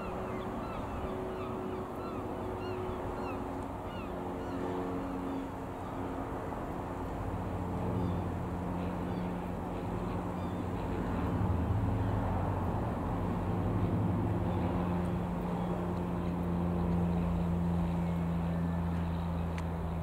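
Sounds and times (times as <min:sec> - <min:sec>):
birds calling: 0:00.0 - 0:06.0
light aircraft engine droning overhead: 0:00.0 - 0:20.0.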